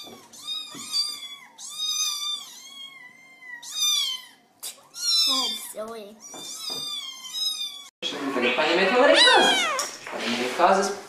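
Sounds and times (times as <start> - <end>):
kittens meowing: 0.0 - 7.9, 9.0 - 9.9.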